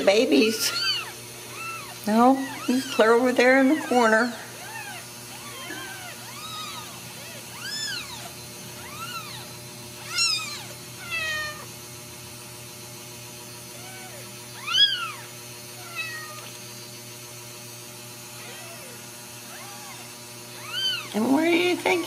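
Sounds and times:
kittens mewing: 0.0 - 11.8, 13.7 - 16.6, 18.3 - 21.2.

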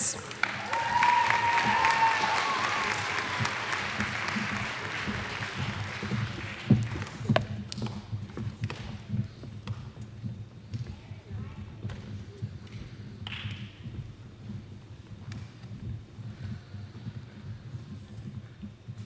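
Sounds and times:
audience applause: 0.0 - 7.4
footsteps on stage: 0.0 - 19.0.

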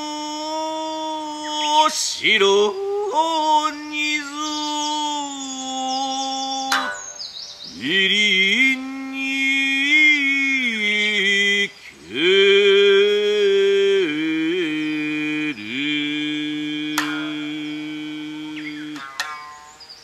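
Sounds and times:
man chanting: 0.0 - 7.0, 7.7 - 19.2
plucked lute strings: 6.6 - 7.3, 16.8 - 19.9.

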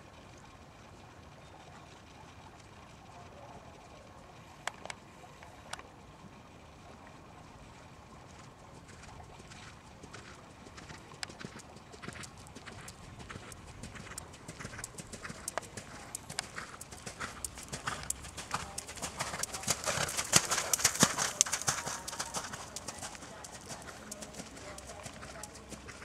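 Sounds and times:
horse hooves trotting on sand: 8.4 - 26.0.

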